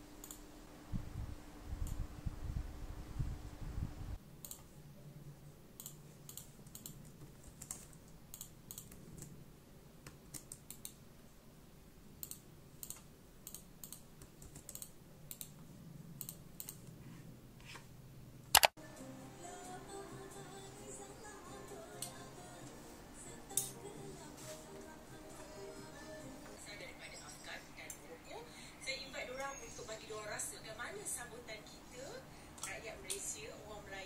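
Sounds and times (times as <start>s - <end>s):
computer keyboard typing: 5.8s - 9.4s, 12.2s - 15.6s, 18.6s - 18.8s.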